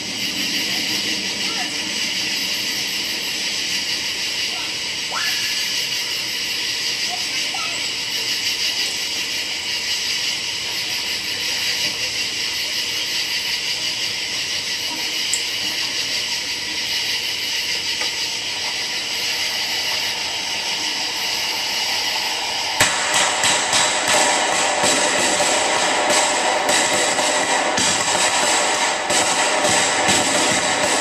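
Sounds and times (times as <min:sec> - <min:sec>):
faint steady tones: 0:00.0 - 0:31.0
steady high hiss: 0:00.0 - 0:31.0
firework bang: 0:19.8 - 0:31.0
small firework pops: 0:22.8 - 0:31.0.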